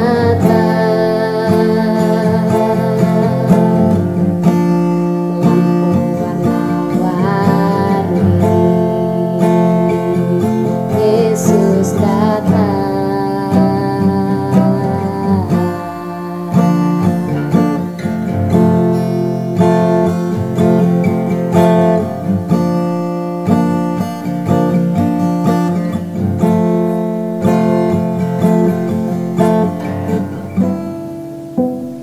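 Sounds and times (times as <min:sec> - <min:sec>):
acoustic guitar strumming chords: 0:00.0 - 0:32.0.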